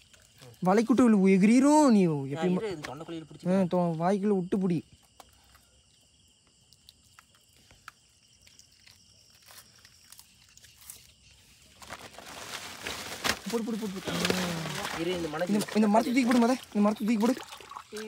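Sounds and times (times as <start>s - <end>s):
person wading in water: 16.2s - 18.0s.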